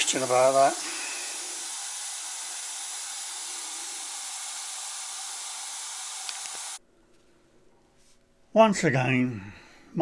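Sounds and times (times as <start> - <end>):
steam hissing: 0.0 - 6.8.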